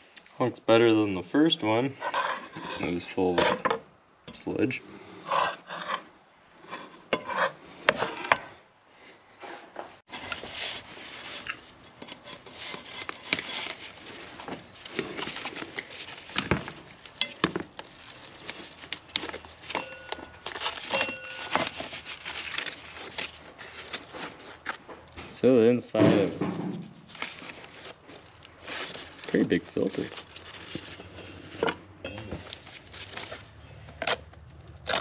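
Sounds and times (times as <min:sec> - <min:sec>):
metal tools clinking and scraping: 0:19.6 - 0:22.0, 0:30.9 - 0:33.2.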